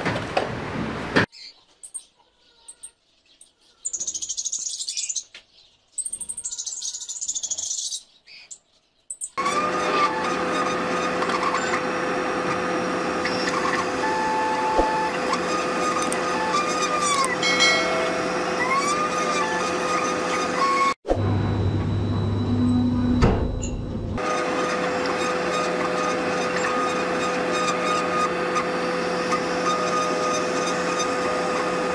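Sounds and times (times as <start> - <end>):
cutting head whine: 9.4 - 31.9
laser cutter machine hum: 9.4 - 31.9.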